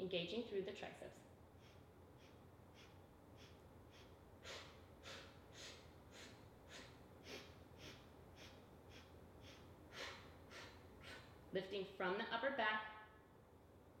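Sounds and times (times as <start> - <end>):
woman's short sharp breaths: 1.6 - 11.4.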